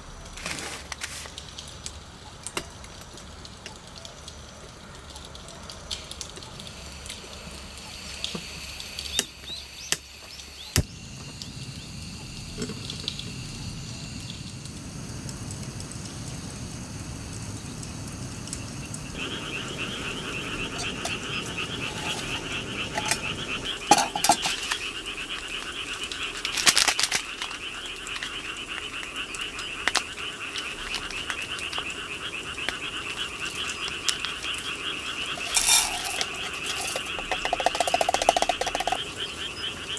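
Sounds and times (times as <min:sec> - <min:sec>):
frogs croaking chorus: 0:01.5 - 0:39.9
metal mugs clinking: 0:21.8 - 0:24.8, 0:35.4 - 0:39.0.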